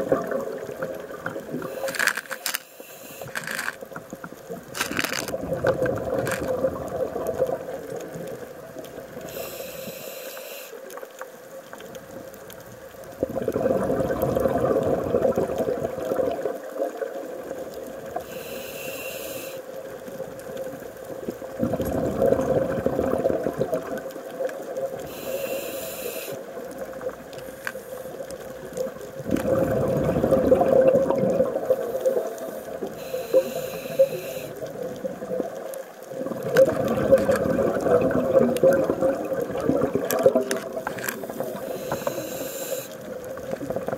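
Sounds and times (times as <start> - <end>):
exhaled bubbles rushing: 0.0 - 1.9, 4.5 - 9.2, 13.1 - 18.1, 21.1 - 25.1, 28.7 - 33.4, 34.6 - 41.8, 43.0 - 43.9
regulator inhalation hiss: 1.6 - 3.8, 9.2 - 10.9, 18.2 - 19.8, 25.0 - 26.5, 31.7 - 34.7, 41.2 - 43.2.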